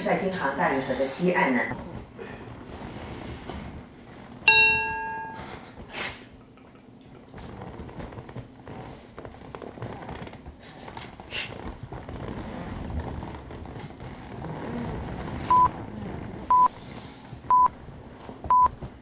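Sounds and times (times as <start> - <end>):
bright metallic ding: 4.5 - 5.6.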